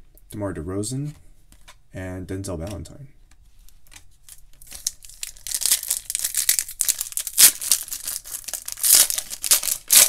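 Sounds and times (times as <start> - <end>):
foil wrapper tearing and crinkling: 4.3 - 10.0.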